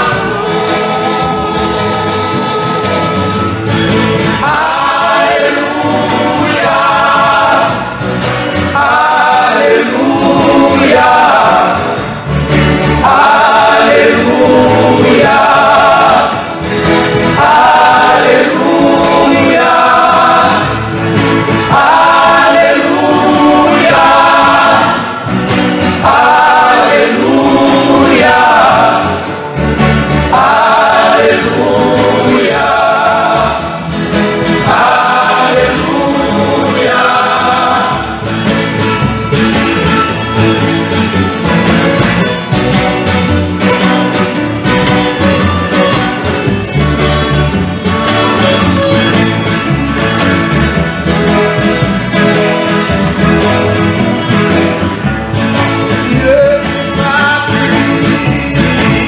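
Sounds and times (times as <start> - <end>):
male choir singing a hymn: 0.0 - 39.1, 55.9 - 59.0
acoustic guitars: 0.0 - 59.0.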